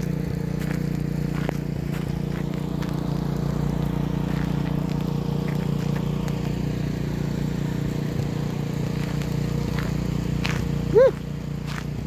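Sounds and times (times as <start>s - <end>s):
footsteps crunching on snow: 0.0s - 12.0s
low engine hum: 0.0s - 12.0s.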